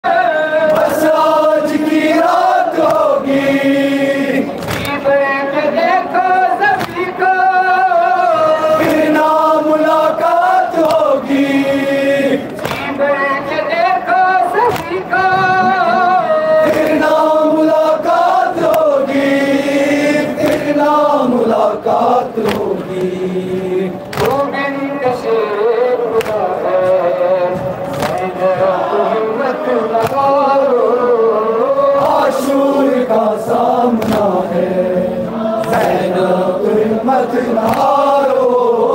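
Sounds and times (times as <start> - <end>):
men chanting a lament: 0.0 - 38.9
hands slapping chests: 0.7 - 1.0, 2.8 - 3.1, 4.5 - 5.0, 6.7 - 7.1, 10.8 - 11.1, 12.4 - 12.9, 14.7 - 15.0, 20.4 - 20.8, 22.4 - 23.2, 24.0 - 24.4, 26.2 - 26.5, 27.8 - 28.3, 30.0 - 30.4, 33.9 - 34.4, 35.6 - 36.2, 37.6 - 38.1.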